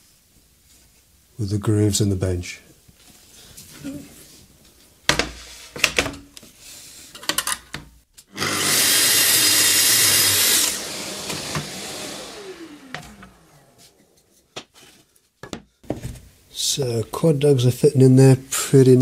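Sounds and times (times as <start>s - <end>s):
circular saw cutting wood: 8.3s - 14.2s
saw blade spinning down: 8.4s - 14.2s.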